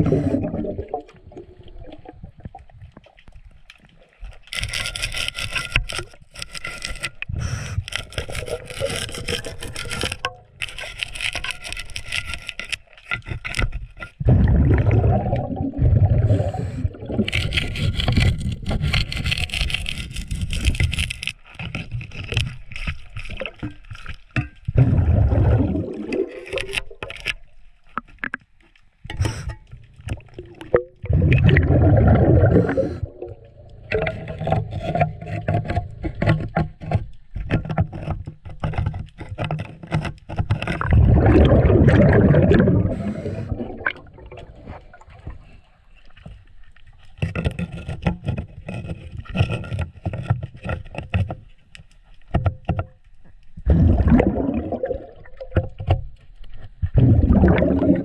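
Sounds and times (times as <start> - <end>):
bubbling exhalations: 0.0 - 2.5, 14.2 - 17.5, 24.8 - 26.7, 30.2 - 34.7, 40.8 - 45.6, 53.6 - 55.6, 56.9 - 58.0
wrench scraping and clicking: 4.5 - 14.2.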